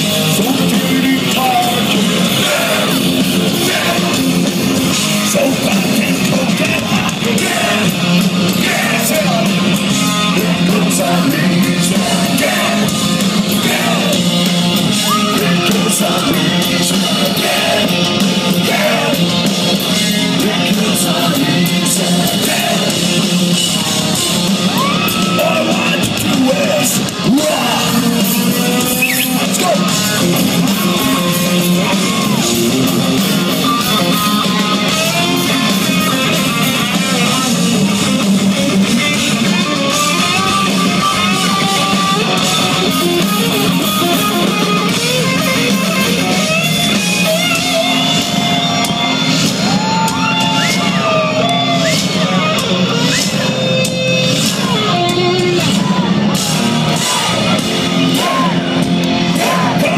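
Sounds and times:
distorted electric guitars: 0:00.0 - 0:59.9
drums: 0:00.0 - 0:59.9
half-shouted lead vocal: 0:00.0 - 0:59.9.

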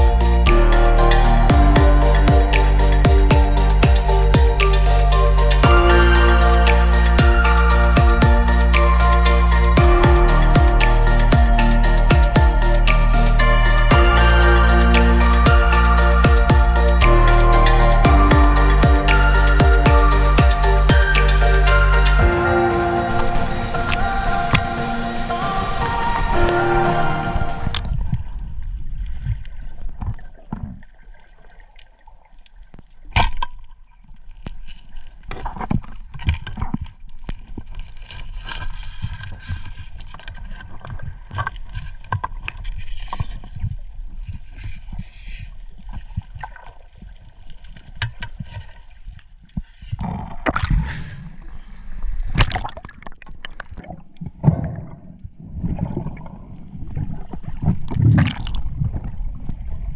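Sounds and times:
underwater gurgling and sloshing: 0:00.0 - 0:59.9
sharp underwater clicks: 0:00.2 - 0:22.2.

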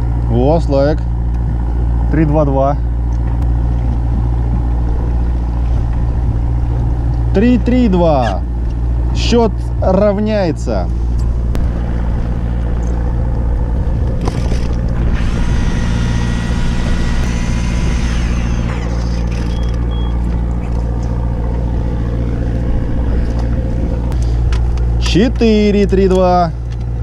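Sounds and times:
boat engine humming: 0:00.0 - 0:27.0
thin high whir: 0:14.1 - 0:21.1.

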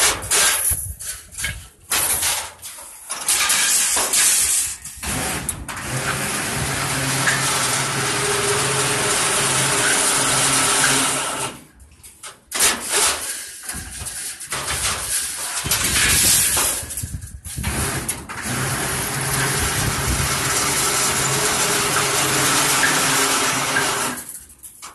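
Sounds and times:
bending machine running: 0:05.0 - 0:11.6, 0:17.6 - 0:24.4.

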